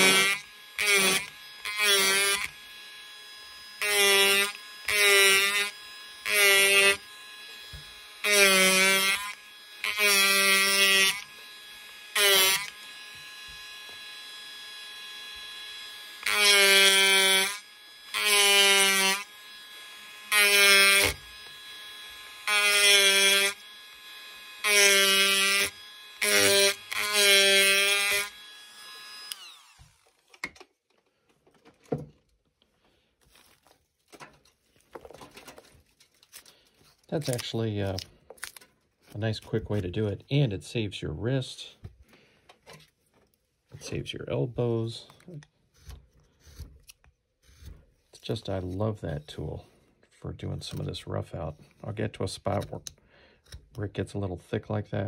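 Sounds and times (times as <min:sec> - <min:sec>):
power carver buzzing: 0:00.0 - 0:30.6.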